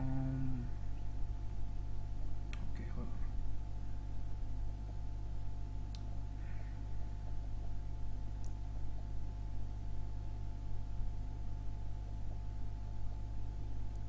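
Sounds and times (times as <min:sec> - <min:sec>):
electrical hum: 0:00.0 - 0:14.0
faint click: 0:05.9 - 0:06.1, 0:08.4 - 0:08.6.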